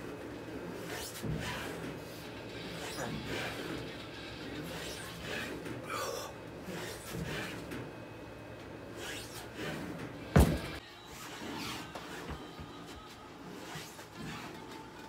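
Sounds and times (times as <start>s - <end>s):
bar rubbing and scraping: 0.6s - 5.8s, 6.6s - 7.8s, 8.9s - 12.4s, 13.4s - 14.6s.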